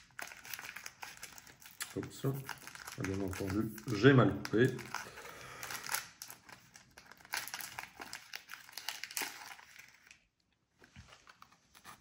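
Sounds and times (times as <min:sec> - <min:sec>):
snack wrapper crinkling: 0:00.0 - 0:12.0.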